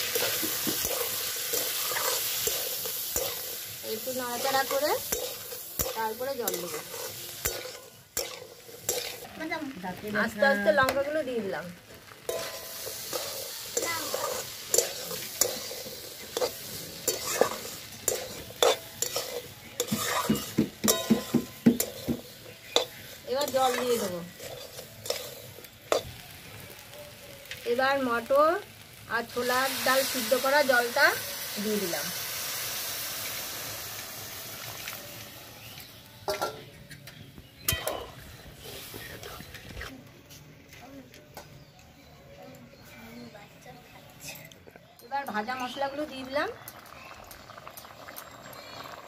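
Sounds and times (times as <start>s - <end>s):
metal spatula scraping pan: 0.0s - 9.5s, 12.2s - 26.0s
frying sizzle: 0.0s - 39.9s, 44.9s - 49.0s
spatula clinking against pan: 17.1s - 23.8s.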